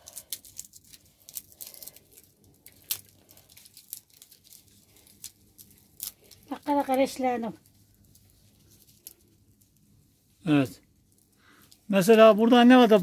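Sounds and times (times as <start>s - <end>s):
dry pods crackling and snapping: 0.0s - 9.9s.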